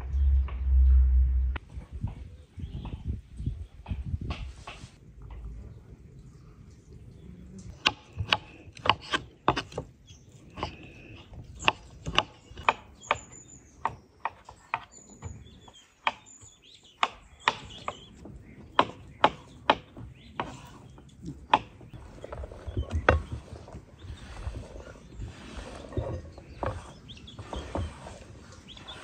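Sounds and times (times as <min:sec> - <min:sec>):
knives chopping on wooden boards: 0:07.8 - 0:09.9, 0:10.6 - 0:21.9.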